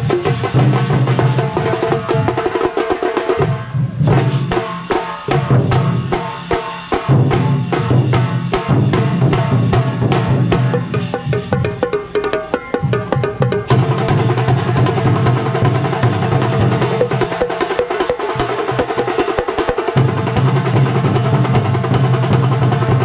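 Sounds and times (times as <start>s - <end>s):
fast drumming with low drums: 0.0s - 23.0s
pitched tune over drums: 0.0s - 23.0s.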